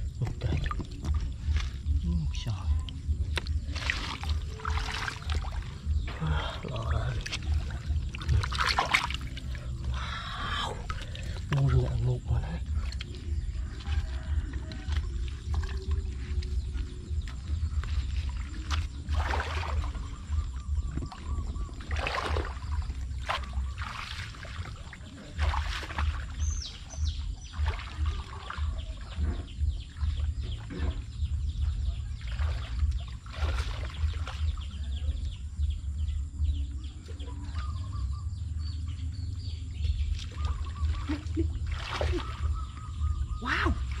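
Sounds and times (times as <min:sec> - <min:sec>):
bird chirps: 0:00.0 - 0:44.0
muddy water splashing: 0:00.0 - 0:44.0
steady low rumble: 0:00.0 - 0:44.0.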